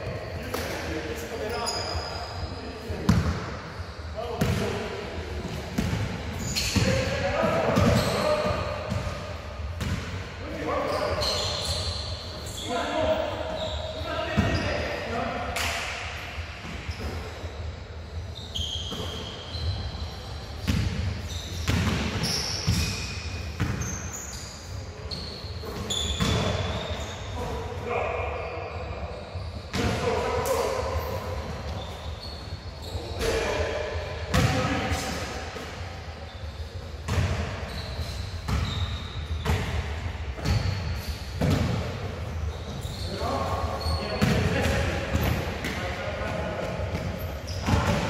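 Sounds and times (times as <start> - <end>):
sneakers squeaking on floor: 0.0 - 48.0
basketball bouncing in echoing hall: 2.9 - 14.9, 18.4 - 28.0, 28.7 - 36.4, 37.0 - 48.0
basketballs bouncing: 4.4 - 4.7, 5.8 - 9.2, 9.8 - 10.1, 20.6 - 22.9, 23.6 - 23.9, 34.3 - 34.7, 37.1 - 37.8, 38.5 - 38.8, 40.4 - 40.7, 41.4 - 42.0, 43.9 - 48.0.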